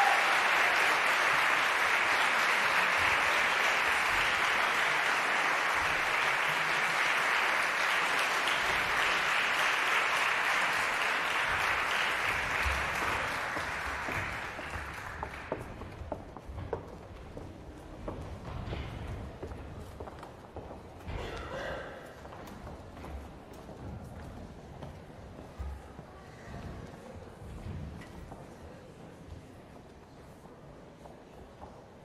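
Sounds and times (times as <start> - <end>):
audience applauding: 0.0 - 16.2.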